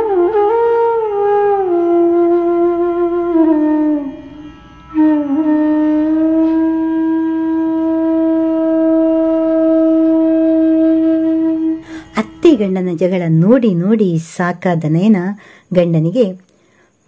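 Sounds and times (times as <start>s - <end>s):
long flute-like note: 0.0s - 12.9s.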